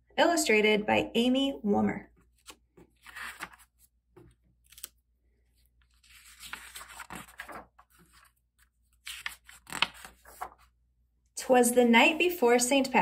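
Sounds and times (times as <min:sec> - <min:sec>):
paper rustling: 0:02.2 - 0:10.8.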